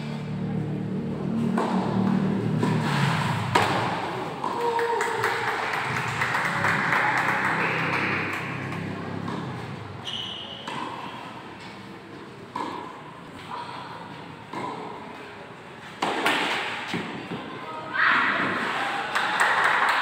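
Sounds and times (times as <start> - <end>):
tennis racket hitting ball: 1.6 - 4.6, 6.5 - 9.8, 10.6 - 11.8, 12.5 - 13.0, 16.0 - 17.1
voices: 4.4 - 10.7.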